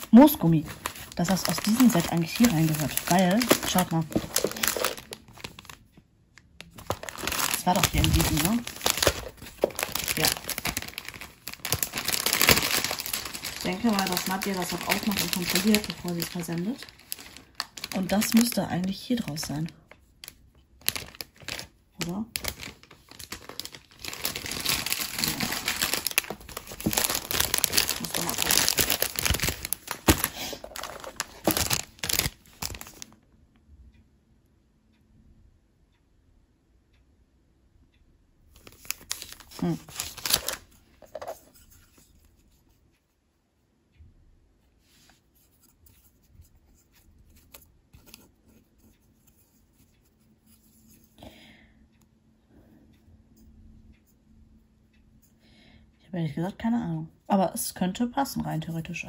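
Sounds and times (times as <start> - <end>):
plastic packaging crinkling: 0.0 - 5.9, 6.6 - 33.2, 38.6 - 41.7.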